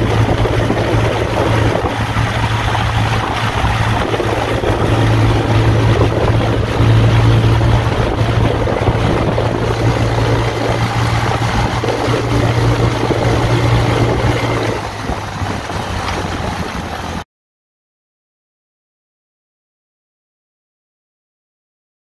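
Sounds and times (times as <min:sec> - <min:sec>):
kart engine running: 0:00.0 - 0:17.2
tyres rumbling on gravel: 0:00.0 - 0:17.2
wind buffeting microphone: 0:00.0 - 0:17.2.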